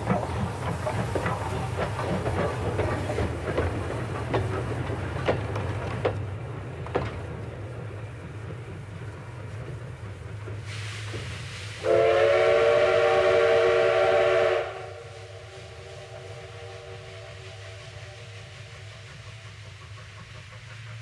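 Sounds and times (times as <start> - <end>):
hiss of steam: 0.0 - 21.0
steam locomotive whistle: 11.8 - 18.3.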